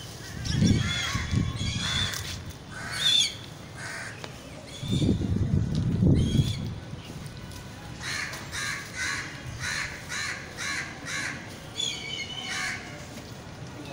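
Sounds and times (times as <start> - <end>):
crow cawing: 0.3 - 3.2, 3.8 - 4.2, 8.0 - 11.4.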